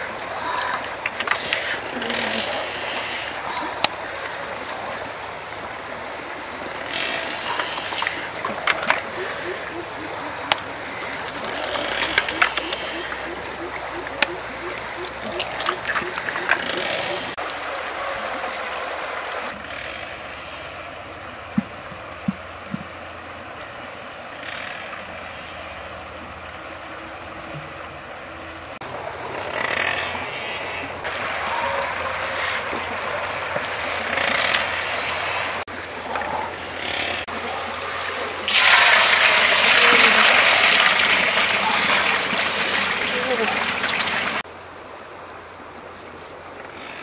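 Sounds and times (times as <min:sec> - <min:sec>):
river rushing: 0:00.0 - 0:45.1
liquid pouring into metal wok: 0:38.5 - 0:42.9
eggs splashing into wok: 0:38.5 - 0:44.2.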